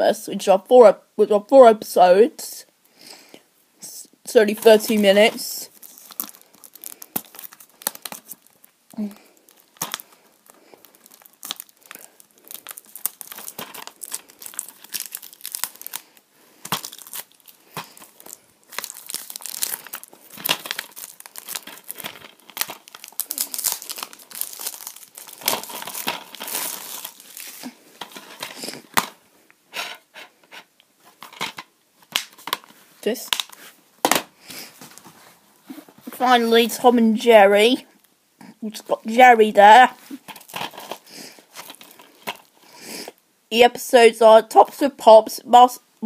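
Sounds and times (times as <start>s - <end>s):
plastic wrap crinkling: 4.4s - 29.2s, 39.6s - 42.8s.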